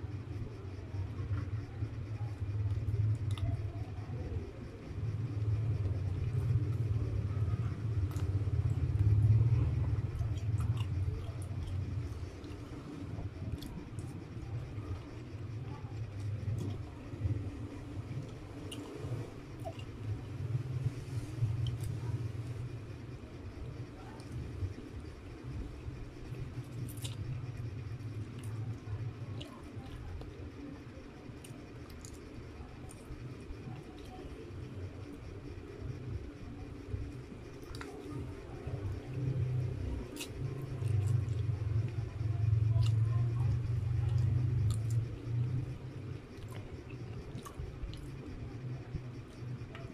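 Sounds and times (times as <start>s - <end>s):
steady low hum: 0.0s - 49.9s
steady low rumble: 0.0s - 49.9s
close chewing: 5.6s - 22.7s, 25.4s - 30.6s, 36.9s - 49.9s.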